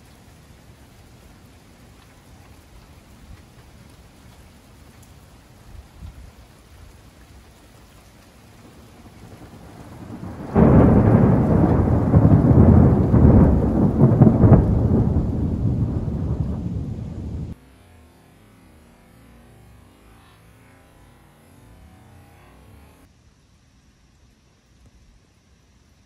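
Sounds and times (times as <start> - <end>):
light rain: 0.0 - 26.0
thunder rumbling and clapping: 8.6 - 17.6.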